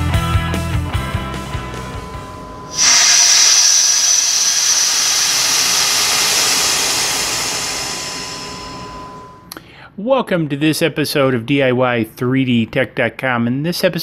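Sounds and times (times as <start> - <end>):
air hissing into vacuum chamber: 2.6 - 9.5.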